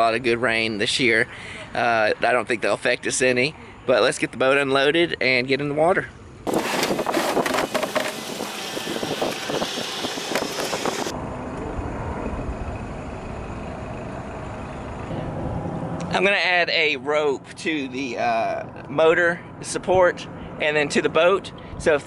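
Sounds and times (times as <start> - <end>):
low rumble of outdoor noise: 0.0 - 22.0
boat knocking and scraping: 6.5 - 11.1.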